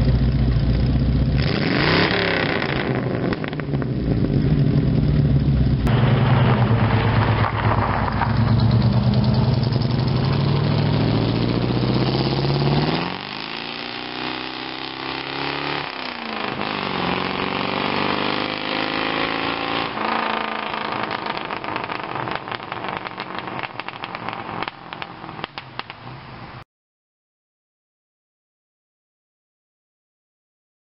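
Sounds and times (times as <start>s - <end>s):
car engine accelerating away: 1.2s - 25.1s.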